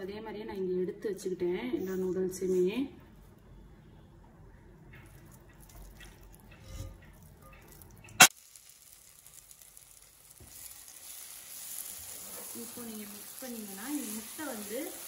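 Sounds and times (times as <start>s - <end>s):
water dripping: 4.8s - 10.4s
faint pan sizzle: 4.9s - 15.0s
wet noodles in metal colander: 5.0s - 15.0s.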